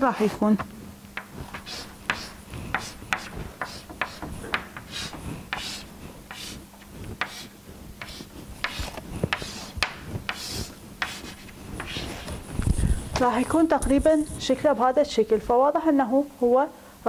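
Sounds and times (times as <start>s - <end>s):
chalk scraping on chalkboard: 0.0s - 0.5s, 1.2s - 6.6s, 7.2s - 12.6s.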